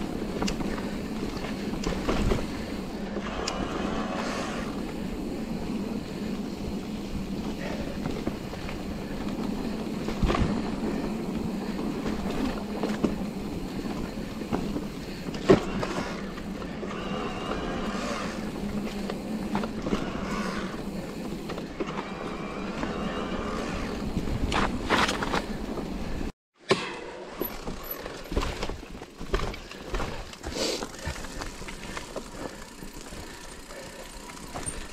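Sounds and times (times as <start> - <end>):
bike knocking and rattling: 0.0 - 3.4, 4.8 - 17.1, 23.6 - 34.9
bike tyres on dirt trail: 0.0 - 34.9.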